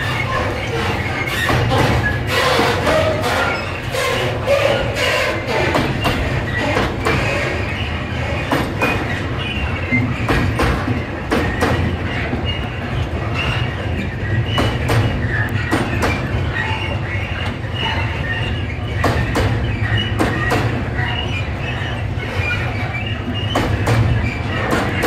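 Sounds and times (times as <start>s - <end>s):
high wheel squeals: 0.0s - 10.6s, 11.4s - 25.0s
freight train rumbling past: 0.0s - 16.6s.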